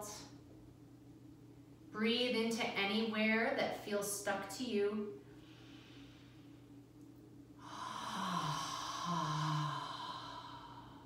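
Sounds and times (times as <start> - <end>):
woman breathing in: 5.3 - 6.7, 7.6 - 11.0
woman sighing: 7.6 - 10.7.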